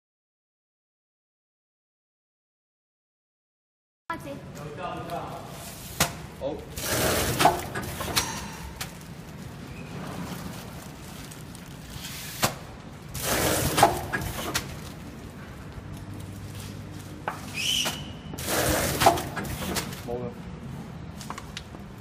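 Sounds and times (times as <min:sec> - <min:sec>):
packing machine hum: 0:06.6 - 0:17.2, 0:17.8 - 0:20.1.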